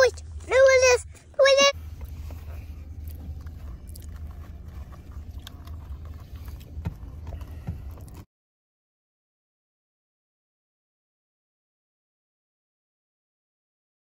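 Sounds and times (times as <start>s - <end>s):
low rumble inside car: 0.0s - 8.3s.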